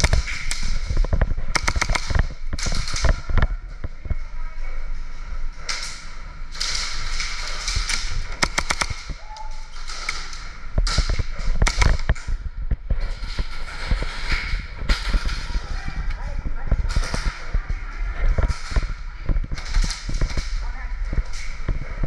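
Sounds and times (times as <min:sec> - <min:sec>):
airsoft gun pops and cracks: 0:01.5 - 0:03.2, 0:07.6 - 0:09.2, 0:10.8 - 0:12.2.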